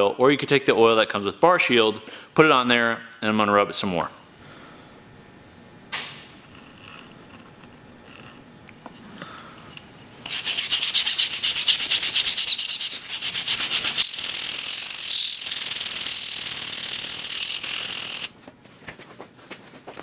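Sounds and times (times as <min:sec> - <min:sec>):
brush scrubbing metal: 0:10.3 - 0:18.3.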